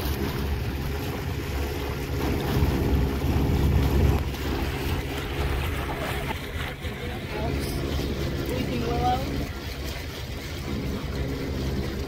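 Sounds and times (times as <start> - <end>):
outboard motor running: 0.0 - 12.0
wind buffeting microphone: 0.0 - 12.0.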